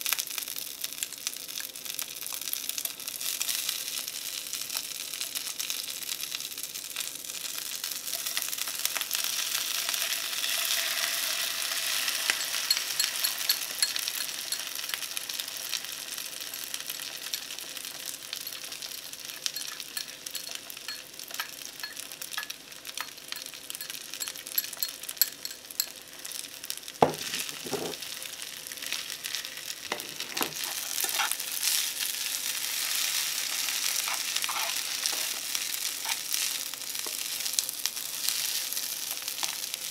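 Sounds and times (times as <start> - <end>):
frying pan sizzling: 0.0 - 39.9
chopsticks clicking on bowl and pan: 12.2 - 15.0, 18.5 - 26.0, 29.9 - 31.4, 33.9 - 36.4.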